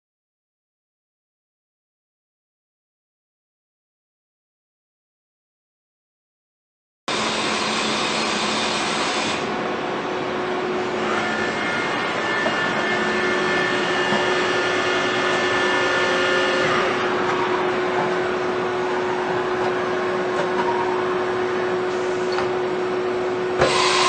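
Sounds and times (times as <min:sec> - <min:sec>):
machining center hum and hiss: 0:07.1 - 0:24.0
machine whining tones: 0:10.3 - 0:24.0.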